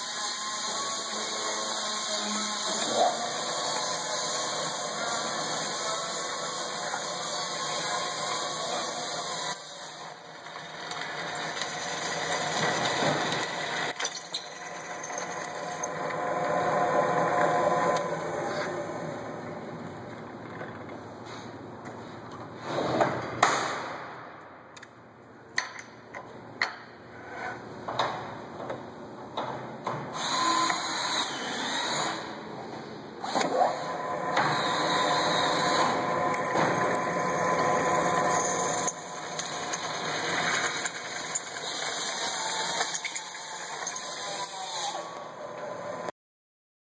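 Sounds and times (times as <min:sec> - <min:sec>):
drill press cutting metal: 0:00.0 - 0:18.7, 0:30.1 - 0:32.4, 0:33.2 - 0:45.2.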